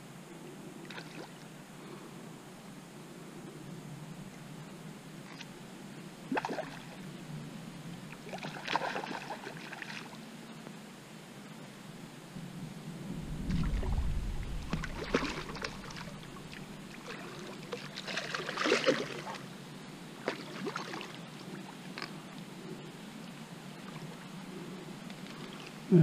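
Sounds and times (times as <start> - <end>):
fish splashing in water: 8.3 - 10.1, 14.6 - 19.4
low rumble: 12.4 - 17.1.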